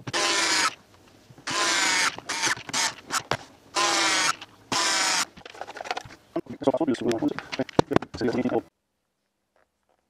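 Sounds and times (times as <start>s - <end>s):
cordless screwdriver motor whine: 0.1s - 0.8s, 1.5s - 3.0s, 3.8s - 5.3s.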